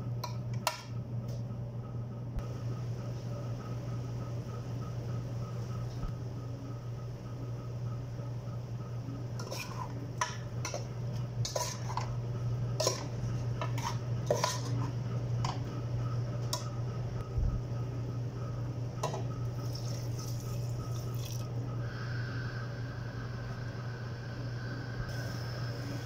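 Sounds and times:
steady low hum: 0.0s - 26.0s
water pouring into pot: 19.6s - 21.5s.

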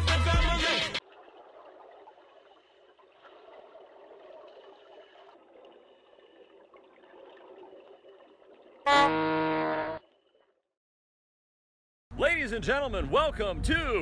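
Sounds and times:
music with a beat: 0.0s - 1.0s.

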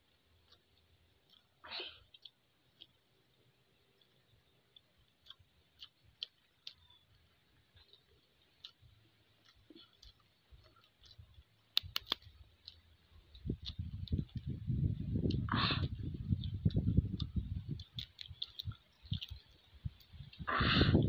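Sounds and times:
chewing clicks: 0.1s - 14.6s, 15.2s - 20.5s
eggshells clicking: 9.4s - 14.4s, 17.2s - 20.4s.

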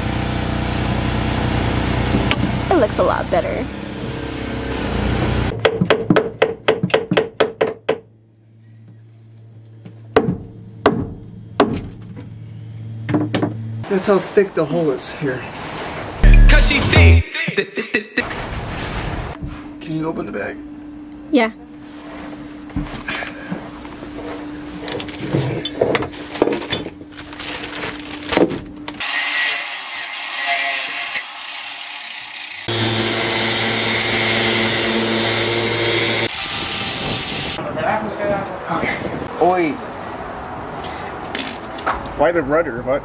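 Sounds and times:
angle grinder on metal: 29.0s - 37.6s.

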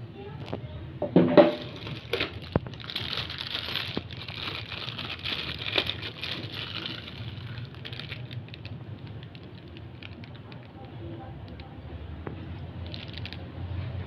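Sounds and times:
plastic bag crinkling: 1.5s - 11.7s, 12.8s - 13.5s.

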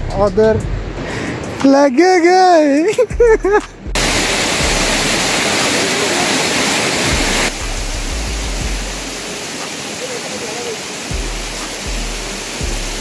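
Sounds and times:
waterfall pouring onto rocks: 4.0s - 13.0s.

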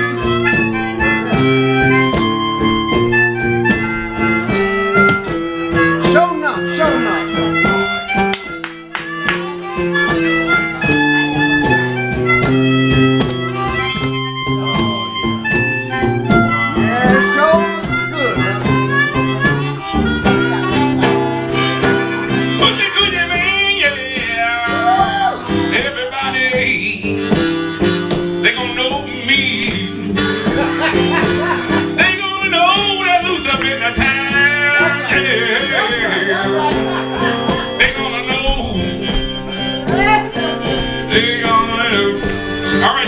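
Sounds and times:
acoustic guitar accompaniment: 0.0s - 43.0s
blues harmonica solo: 0.0s - 43.0s.

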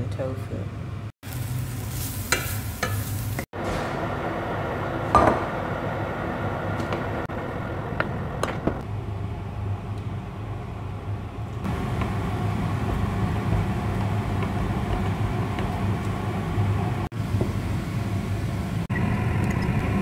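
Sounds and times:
low machine hum: 3.6s - 20.0s.

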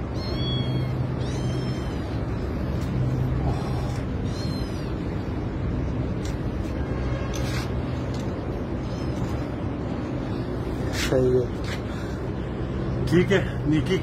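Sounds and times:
kitten meowing: 0.0s - 2.5s, 3.5s - 5.2s
steady low rumble: 0.0s - 14.0s.

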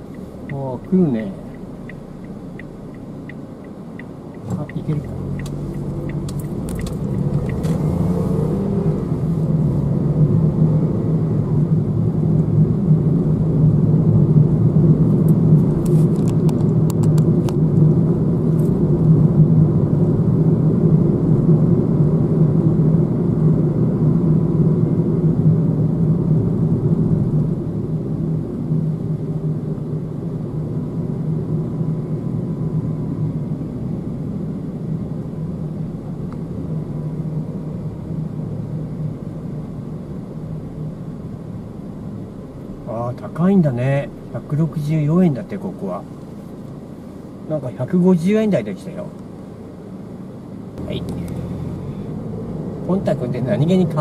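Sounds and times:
car tyre and engine rumble: 0.0s - 54.0s.

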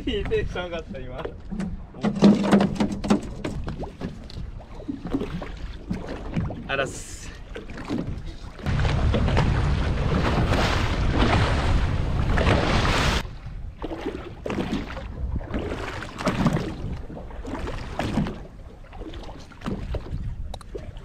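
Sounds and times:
water lapping against hull: 0.0s - 21.0s
water rushing along boat hull: 0.0s - 21.0s
wind on microphone: 8.6s - 18.6s, 19.7s - 21.0s.

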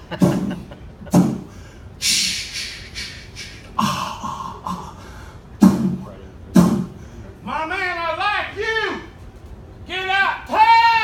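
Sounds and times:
sharp hissing breath: 1.4s - 4.1s.

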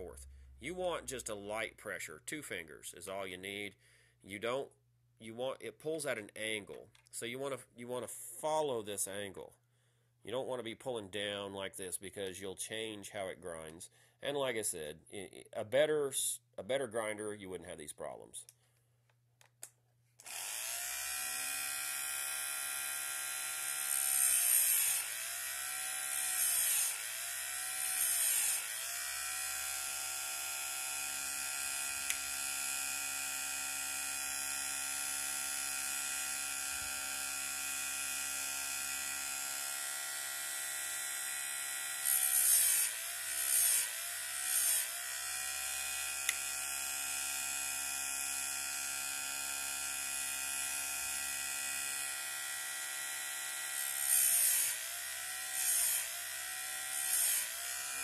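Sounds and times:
grinder motor humming: 20.2s - 47.1s, 49.0s - 58.0s
grinding wheel on chain: 22.7s - 32.0s, 41.9s - 46.6s, 48.7s - 58.0s.

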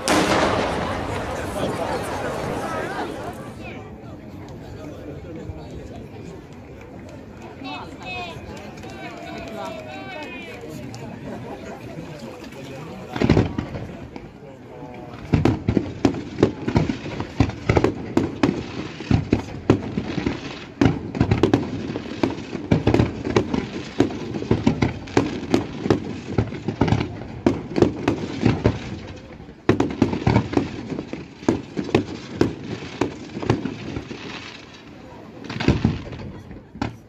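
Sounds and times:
fireworks bursting with sharp bangs: 0.0s - 3.7s, 13.1s - 14.3s, 15.2s - 37.0s.

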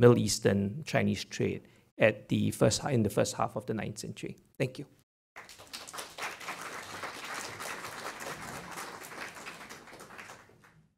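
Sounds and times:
audience applauding: 5.4s - 10.9s.

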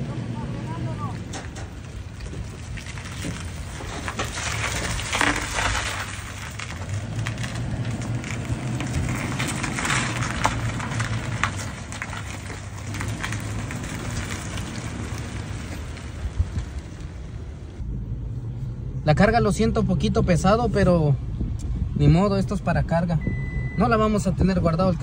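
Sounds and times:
tyres and trailer crackling: 0.0s - 18.2s
pickup engine hum: 0.0s - 22.1s.

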